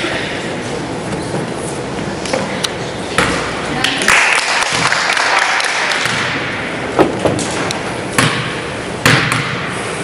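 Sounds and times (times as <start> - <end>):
basketball bouncing on wood floor: 8.2 - 9.7.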